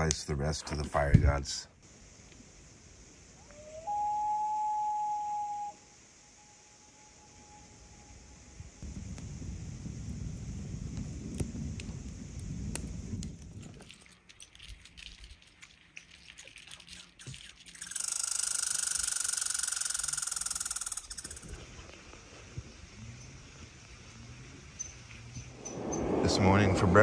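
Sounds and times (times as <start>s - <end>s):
campfire crackling: 8.8s - 16.6s
squirrel rattling chatter: 16.6s - 21.6s
low rumble: 25.4s - 27.0s.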